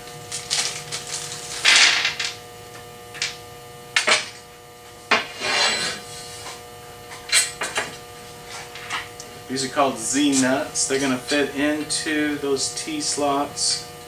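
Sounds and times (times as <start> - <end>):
plastic bag rustling: 0.2 - 1.8.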